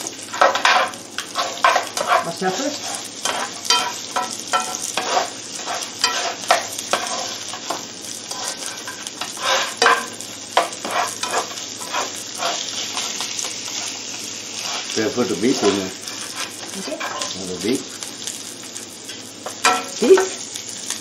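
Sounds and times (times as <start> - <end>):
onion and garlic sizzling in oil: 0.0 - 21.0
spatula scraping a pan: 0.2 - 17.4.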